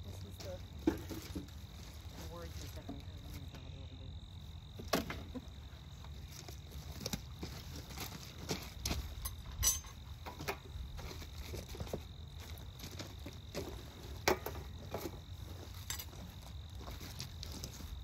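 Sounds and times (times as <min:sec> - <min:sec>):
wooden frames clicking and knocking: 0:00.7 - 0:01.8, 0:04.7 - 0:05.6, 0:07.0 - 0:12.0, 0:12.9 - 0:16.3.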